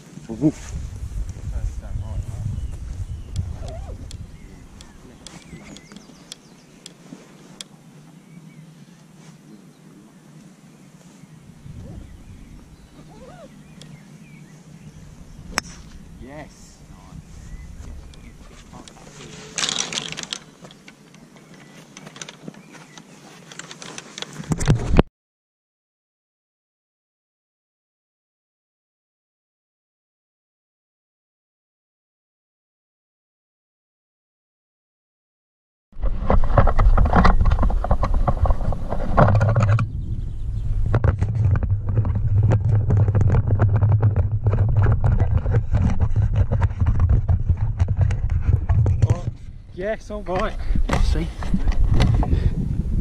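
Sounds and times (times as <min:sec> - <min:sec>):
rustling and clicking: 0:03.3 - 0:07.7, 0:17.8 - 0:25.1, 0:36.0 - 0:39.9, 0:40.8 - 0:49.5
drone motors humming: 0:07.7 - 0:21.7
rattling clicks: 0:18.8 - 0:21.0.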